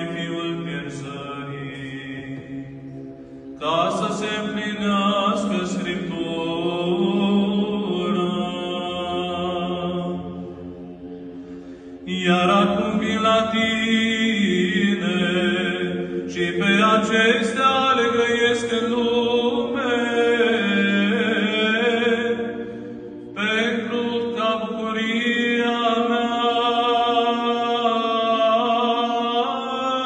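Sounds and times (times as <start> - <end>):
man chanting: 23.3 - 30.0.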